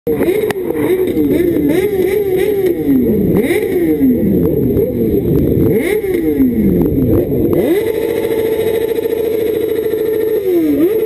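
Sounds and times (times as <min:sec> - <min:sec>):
motorcycle engines revving: 0:00.1 - 0:11.0.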